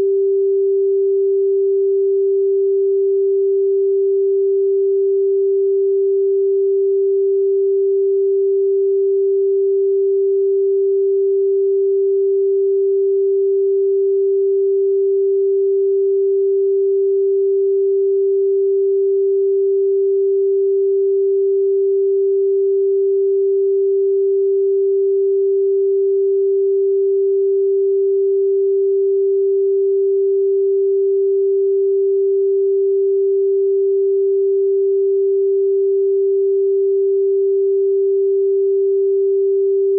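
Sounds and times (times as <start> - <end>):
sine wave test tone: 0.0 - 39.9.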